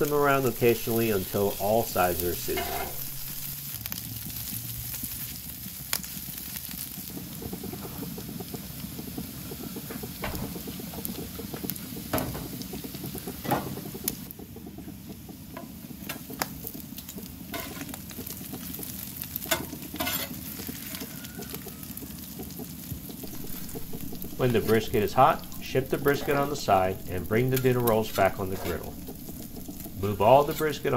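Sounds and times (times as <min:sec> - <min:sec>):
spatulas scraping griddle: 0:00.0 - 0:03.7, 0:19.4 - 0:21.1, 0:23.2 - 0:30.9
meat sizzling on griddle: 0:00.0 - 0:30.9.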